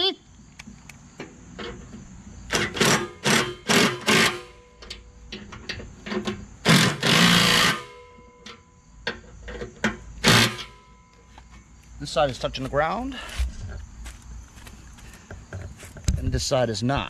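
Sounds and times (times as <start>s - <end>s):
impact driver bursts: 2.5s - 4.6s, 6.6s - 8.2s, 10.2s - 10.8s.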